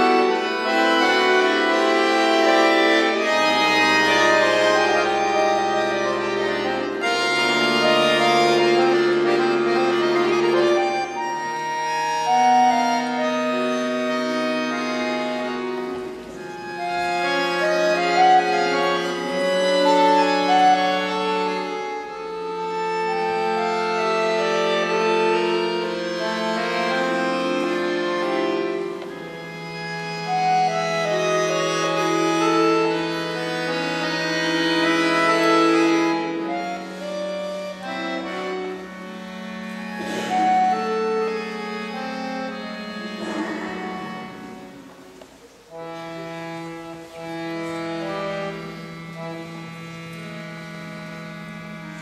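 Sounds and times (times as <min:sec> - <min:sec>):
button accordion melody: 0:00.0 - 0:52.0.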